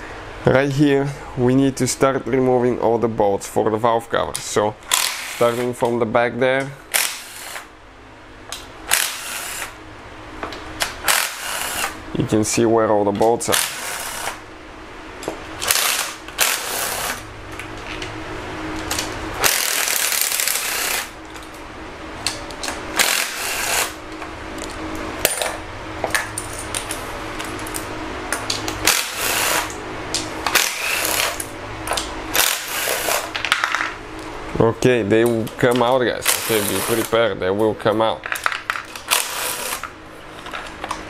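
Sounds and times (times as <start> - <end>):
cordless power tool spinning bolts: 4.9 - 5.7, 6.9 - 7.7, 8.9 - 9.8, 11.0 - 12.0, 13.5 - 14.4, 15.6 - 17.2, 19.4 - 21.1, 23.0 - 24.0, 28.8 - 29.7, 30.5 - 31.4, 32.4 - 33.3, 36.2 - 37.2, 38.9 - 39.9.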